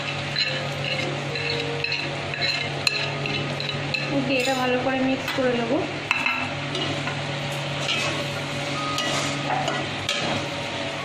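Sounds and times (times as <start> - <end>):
metal spoon scraping pan: 0.0 - 4.8
steady low hum: 0.0 - 11.0.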